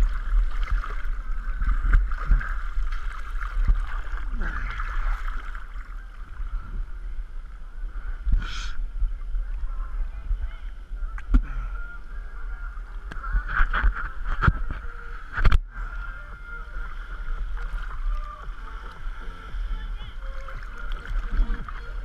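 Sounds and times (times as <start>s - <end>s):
water lapping and slapping: 0.0s - 6.6s, 12.9s - 22.0s
low rumble: 0.0s - 22.0s
steady high whine: 0.0s - 22.0s.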